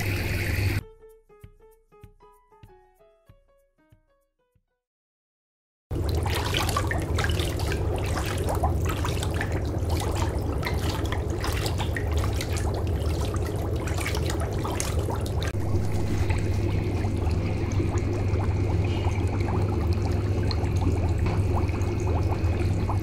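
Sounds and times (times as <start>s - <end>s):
bath water splashing: 5.9s - 23.0s
steady low hum: 5.9s - 23.0s.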